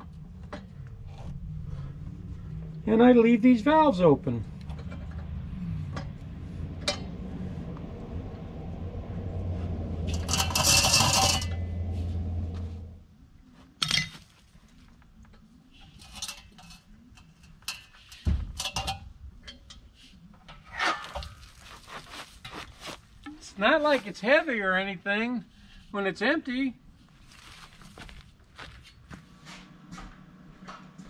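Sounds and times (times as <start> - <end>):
steady low hum: 0.0 - 13.6
metal clinks and knocks: 10.0 - 11.9, 15.8 - 19.8.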